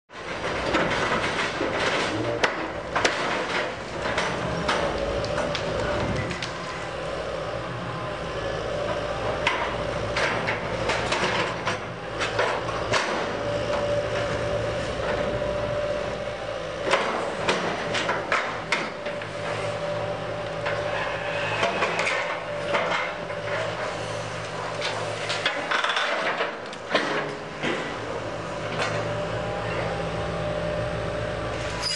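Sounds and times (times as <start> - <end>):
heavy machine engine running: 0.1 - 31.9
debris clanking and crashing: 0.2 - 6.5.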